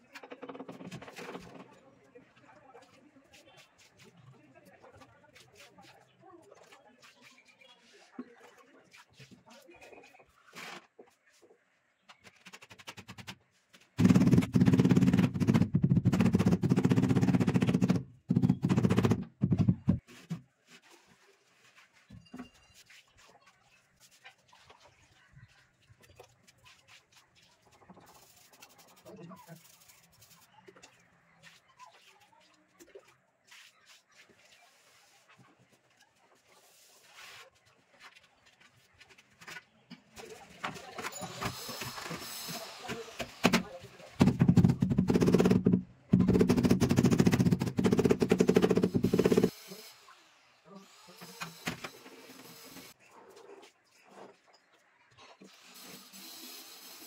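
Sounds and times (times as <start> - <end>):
faint light taps and scrapes: 20.0 - 41.8
tile grinding on wet mortar: 44.2 - 49.5.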